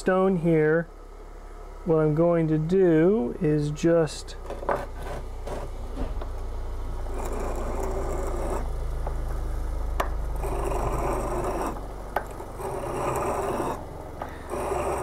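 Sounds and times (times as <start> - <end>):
steady low hum: 0.0 - 15.0
steel scraping on sharpening stone: 7.1 - 8.7, 10.4 - 11.8, 12.6 - 13.8, 14.4 - 15.0.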